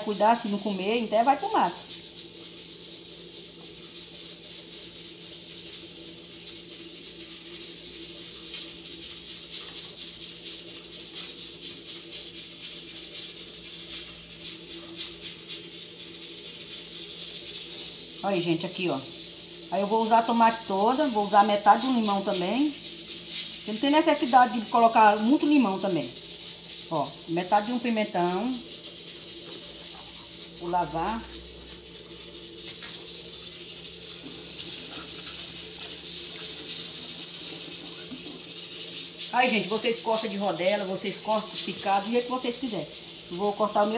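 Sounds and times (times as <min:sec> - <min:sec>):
tap water running into sink: 0:28.7 - 0:39.9
water splashing over vegetables: 0:34.1 - 0:40.4.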